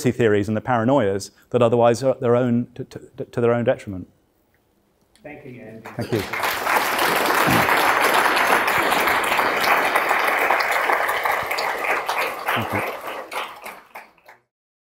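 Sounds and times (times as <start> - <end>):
audience applauding: 5.8 - 14.5.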